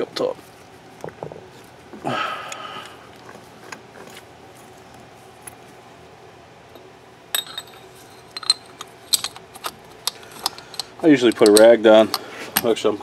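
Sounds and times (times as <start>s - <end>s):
metallic clicks and clinks: 7.4s - 12.7s.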